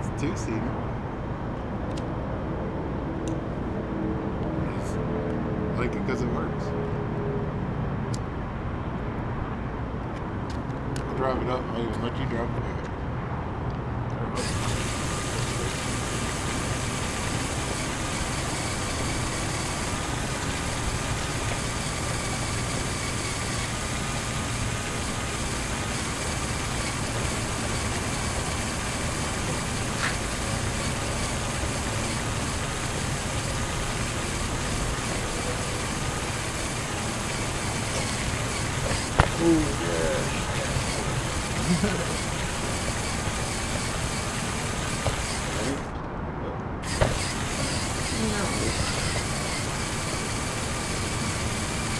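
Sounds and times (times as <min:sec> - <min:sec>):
toy motor whine and gear noise: 0:14.4 - 0:46.0, 0:46.8 - 0:51.9
tyres rolling on brick pavers: 0:14.4 - 0:46.0, 0:46.8 - 0:51.9.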